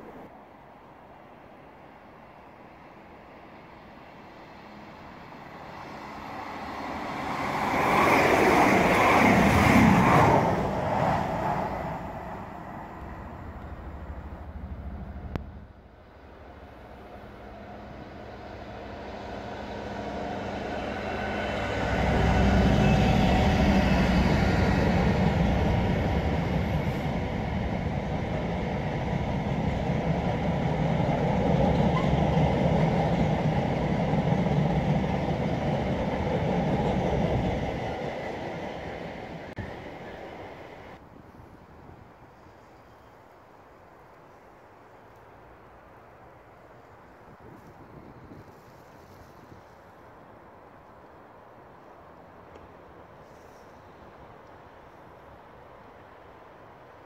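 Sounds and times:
freight train passing: 0.0s - 41.2s
deep low rumble of train: 0.0s - 57.0s.

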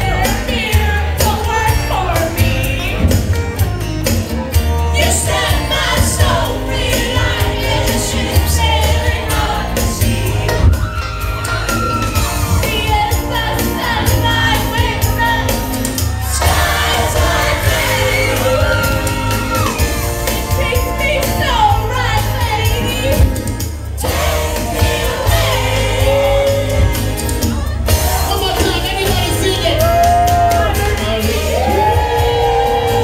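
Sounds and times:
dance backing track with bass: 0.0s - 33.0s
woman singing into microphone: 20.4s - 23.5s.

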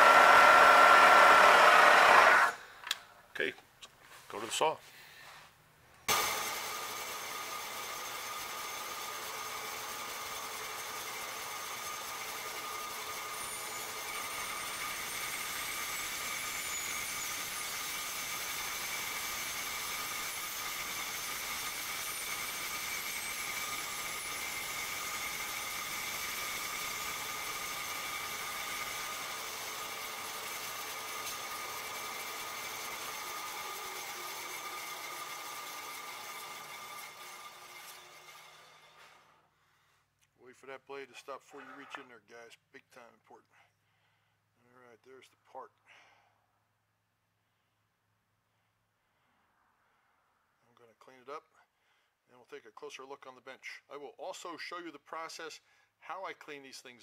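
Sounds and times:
bandsaw cutting metal: 0.0s - 2.6s, 6.1s - 39.4s.

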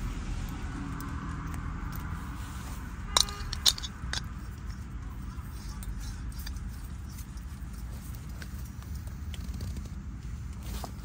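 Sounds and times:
road traffic rumble: 0.0s - 11.0s
small metal clinks and clicks: 3.1s - 8.6s.

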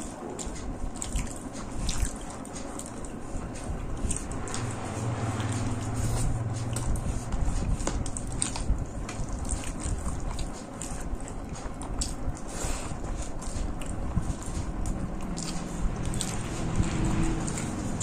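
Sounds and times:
close chewing with mouth smacks: 0.0s - 18.0s
fingers mixing rice: 0.0s - 18.0s.

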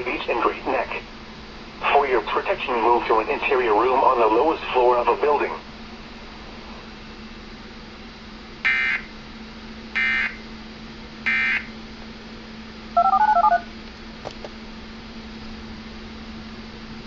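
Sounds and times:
faint steady hum: 0.0s - 17.0s
touch-tone beeps: 13.0s - 13.7s.

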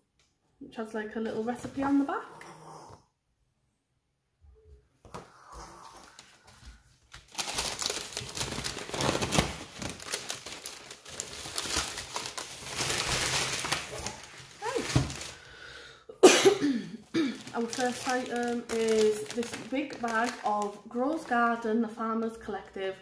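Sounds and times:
packaging crinkling: 6.4s - 15.5s, 17.3s - 21.4s.

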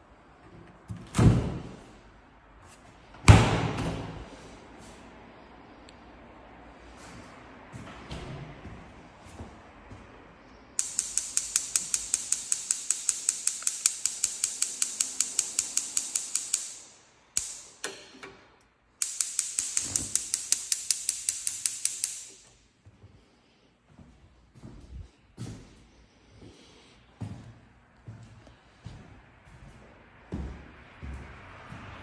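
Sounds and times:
gas range igniter clicking: 10.8s - 18.0s, 19.0s - 22.4s.

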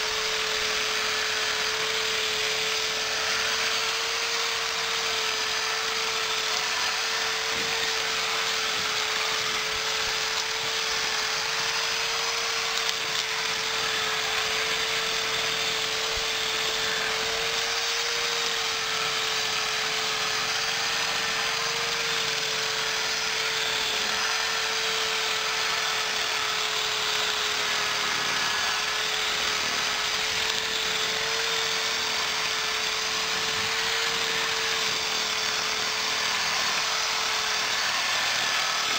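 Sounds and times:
grass cutting hiss: 0.0s - 24.6s
electric drill whining: 0.0s - 38.9s.

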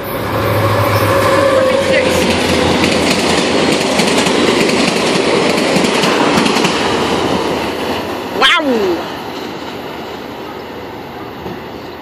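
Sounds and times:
train wheels clattering over rails: 2.0s - 8.4s.

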